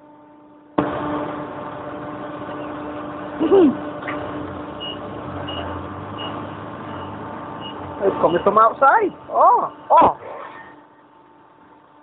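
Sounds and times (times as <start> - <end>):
vehicle reversing alarm beeping: 4.1 - 8.7.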